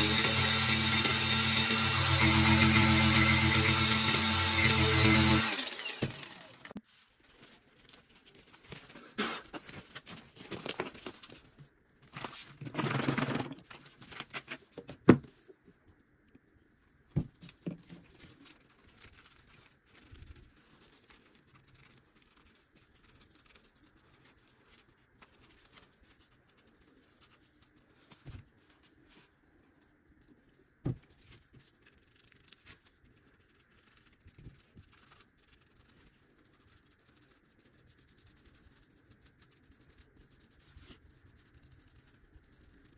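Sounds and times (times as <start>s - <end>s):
gloves and plastic crinkling: 6.8s - 15.9s.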